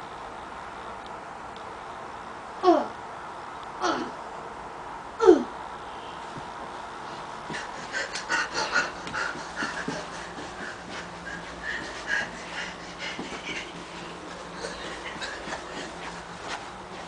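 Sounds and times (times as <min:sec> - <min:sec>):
person panting: 0:07.2 - 0:17.0.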